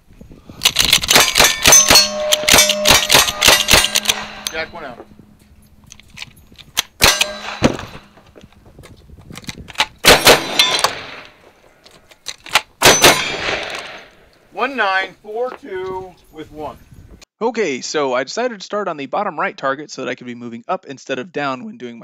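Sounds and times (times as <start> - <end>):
rifle shots: 0.8 - 4.8, 6.9 - 8.2, 10.0 - 11.4, 12.8 - 14.1
shotgun shots: 0.8 - 4.8, 7.0 - 8.2, 10.0 - 11.4, 12.8 - 14.1
steel targets clanging: 1.2 - 5.1, 7.0 - 8.2.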